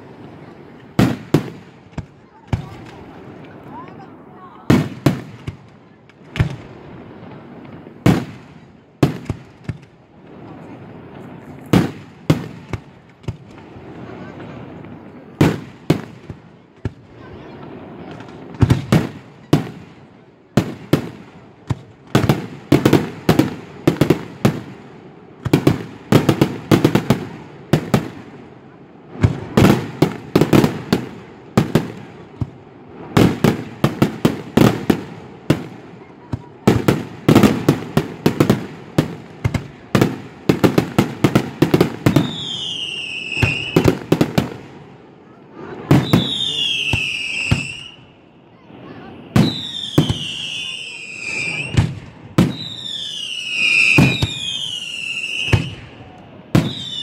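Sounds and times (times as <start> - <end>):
fireworks bursting with sharp bangs: 0.0 - 57.0
high whistle sliding down: 49.5 - 51.8.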